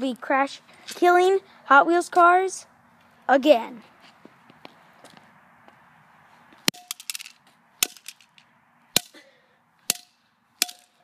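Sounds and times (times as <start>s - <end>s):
bat hitting toy car: 6.7s - 8.4s, 9.9s - 11.0s.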